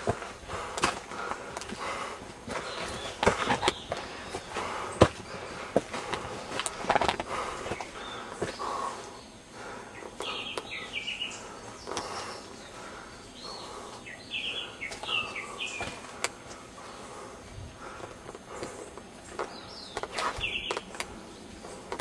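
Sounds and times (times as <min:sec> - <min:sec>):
footsteps on rocky trail: 0:00.0 - 0:22.0
bird chirps: 0:07.7 - 0:16.0, 0:18.7 - 0:21.5.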